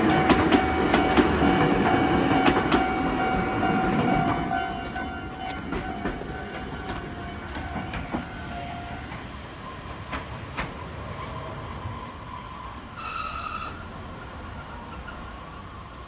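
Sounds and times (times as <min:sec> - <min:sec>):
clacks over rail joints: 0:00.0 - 0:10.9
train wheels rumbling on track: 0:00.0 - 0:16.0.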